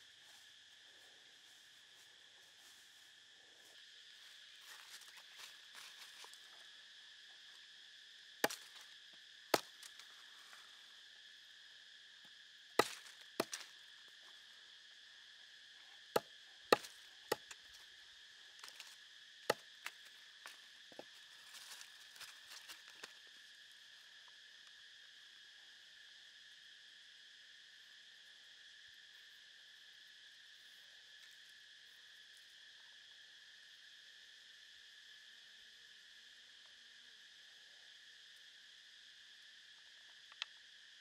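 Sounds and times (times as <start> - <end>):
insects buzzing: 0.0 - 41.0
knife chopping on wood: 12.8 - 13.6.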